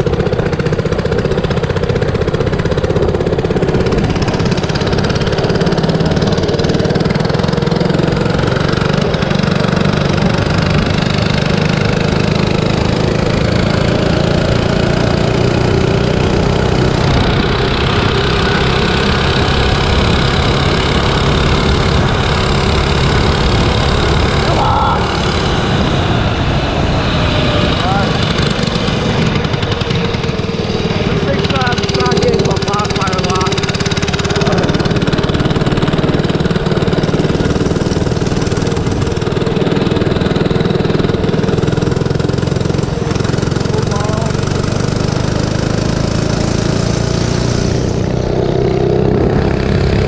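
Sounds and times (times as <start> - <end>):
mini bike engine running: 0.0 - 50.0
wind noise on microphone: 16.5 - 32.6.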